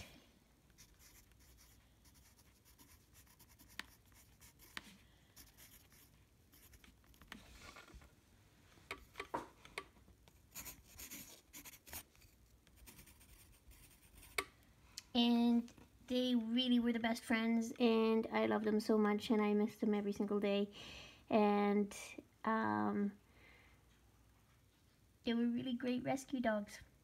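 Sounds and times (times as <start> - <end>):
pencil scratching on paper: 0.8 - 7.3, 10.5 - 14.5.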